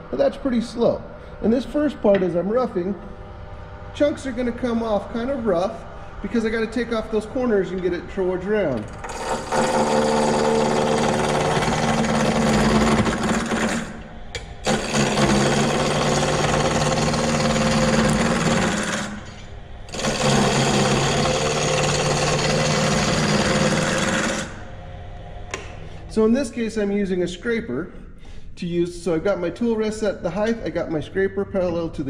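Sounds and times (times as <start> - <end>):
lathe scraper cutting wood: 9.0 - 14.0, 14.6 - 24.7.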